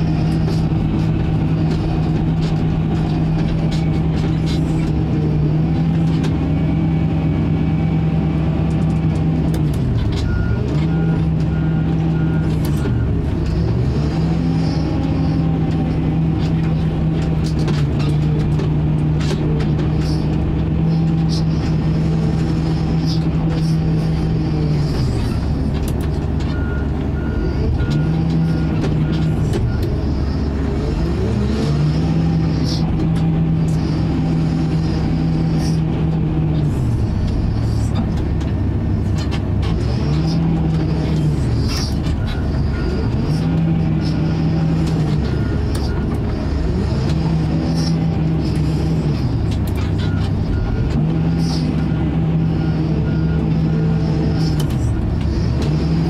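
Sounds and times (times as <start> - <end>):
diesel engine revving: 0.0 - 56.0
beeping alarm: 42.0 - 56.0.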